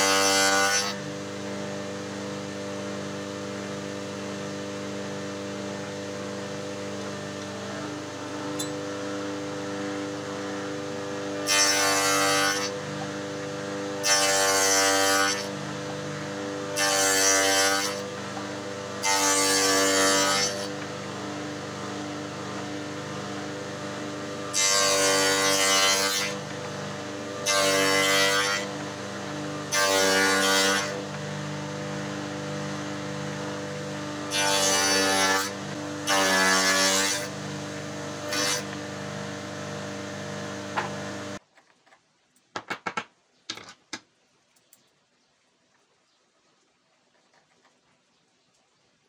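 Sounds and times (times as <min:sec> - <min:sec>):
wood shaper humming: 0:00.0 - 0:41.4.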